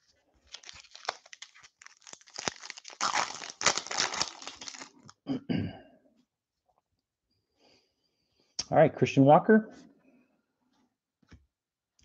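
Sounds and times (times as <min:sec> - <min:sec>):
foil wrapper tearing and crinkling: 0:00.0 - 0:05.2.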